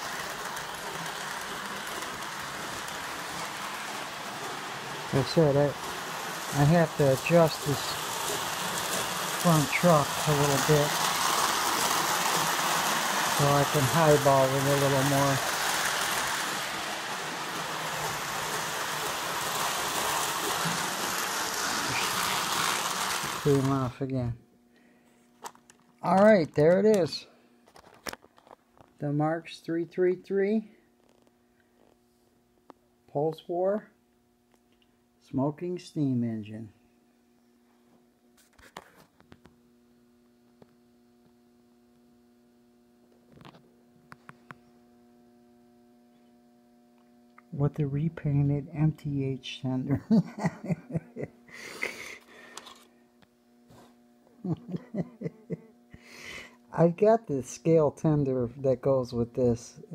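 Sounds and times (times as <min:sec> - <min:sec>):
toy train whirring rattle: 0:00.0 - 0:24.0
faint electrical hum: 0:00.0 - 0:59.9.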